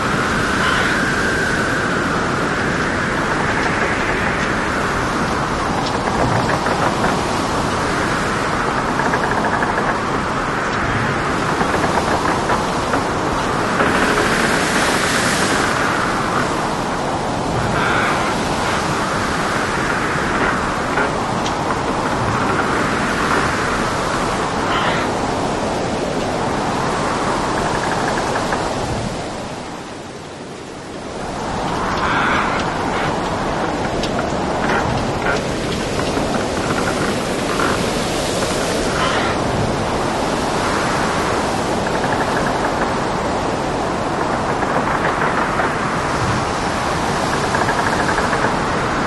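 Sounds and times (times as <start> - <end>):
rain: 0.0 - 49.0
waves breaking: 0.0 - 49.0.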